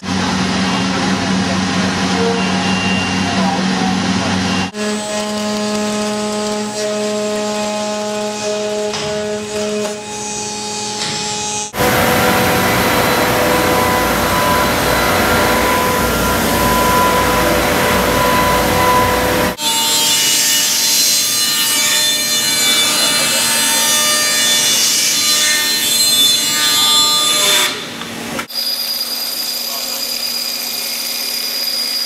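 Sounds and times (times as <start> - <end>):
router cutting with steady whine: 4.7 - 19.7
high-pitched router head whining: 9.8 - 19.6.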